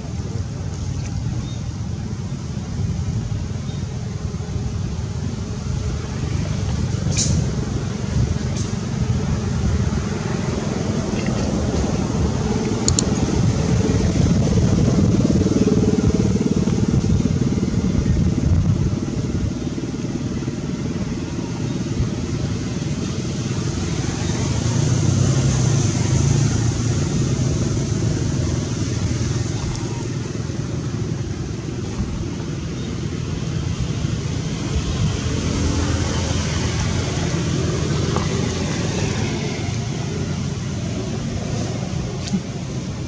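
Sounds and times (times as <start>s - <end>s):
low outdoor rumble: 0.0s - 43.0s.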